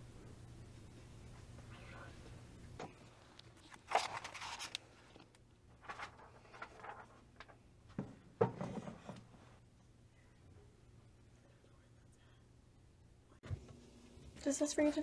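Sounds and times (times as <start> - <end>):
book pages rustling: 3.3 - 7.6
book knocking on shelf: 8.0 - 9.2.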